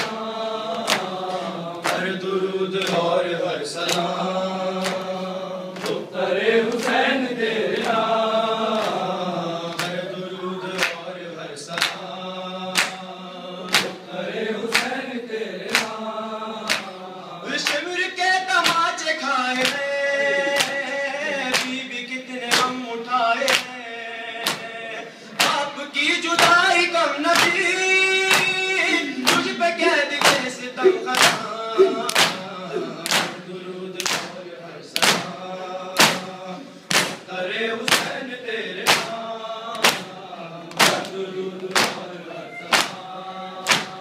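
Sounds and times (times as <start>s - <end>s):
men chanting in unison: 0.0s - 44.0s
hands beating chests: 30.1s - 33.4s, 36.0s - 36.3s, 36.9s - 37.3s, 38.8s - 39.2s, 40.7s - 41.1s, 41.7s - 42.1s, 42.7s - 43.0s, 43.6s - 44.0s.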